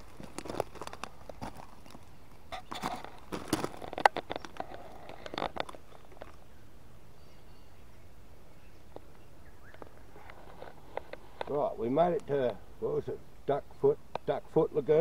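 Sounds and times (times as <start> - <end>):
footsteps crunching on dry leaves: 0.0 - 6.4
faint high bird chirp: 6.5 - 10.1.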